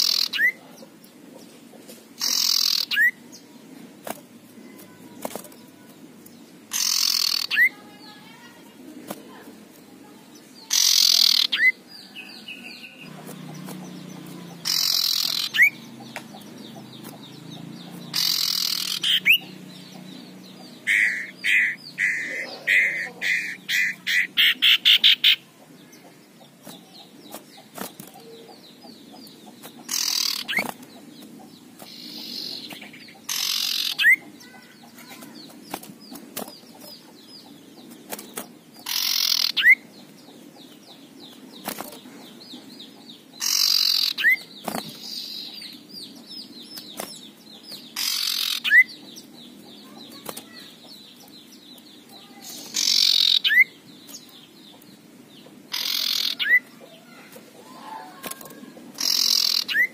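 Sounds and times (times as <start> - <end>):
bird rasping scold calls: 0.0 - 0.6, 2.2 - 3.2, 6.7 - 7.8, 10.6 - 11.8, 14.5 - 15.8, 18.1 - 19.5, 20.7 - 25.4, 29.8 - 30.8, 31.8 - 35.4, 38.8 - 39.8, 43.4 - 45.5, 48.0 - 48.9, 52.4 - 53.8, 55.7 - 59.9.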